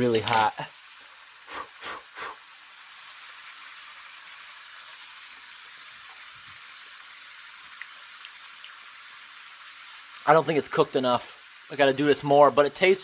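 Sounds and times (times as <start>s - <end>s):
fries deep-frying sizzle: 0.0s - 13.0s
short breathy sound: 1.5s - 2.4s.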